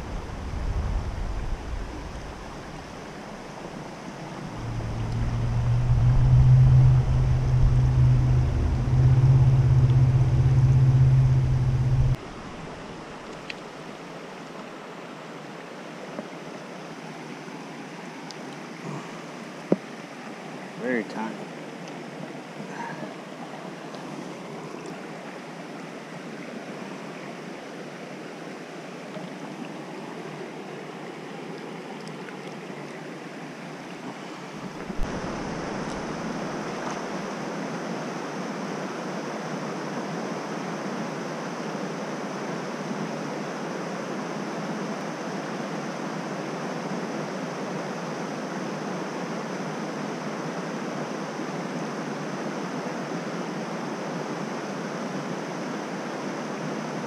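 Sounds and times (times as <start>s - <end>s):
stream rushing over rocks: 0.0s - 53.2s.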